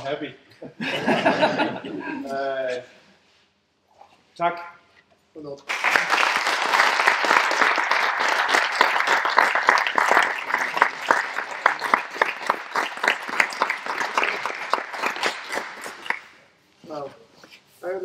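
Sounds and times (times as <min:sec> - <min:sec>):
audience applauding: 0:05.7 - 0:16.4.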